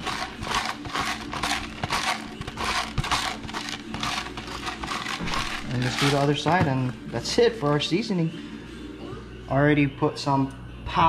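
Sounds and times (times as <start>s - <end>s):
pepper grinder crunching peppercorns: 0.0s - 6.9s.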